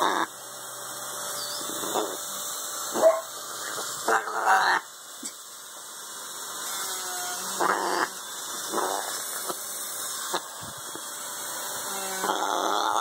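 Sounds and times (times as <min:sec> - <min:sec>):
parrot raspy calls: 0:00.0 - 0:00.3, 0:01.4 - 0:02.2, 0:03.0 - 0:04.9, 0:07.5 - 0:09.3, 0:12.0 - 0:13.0.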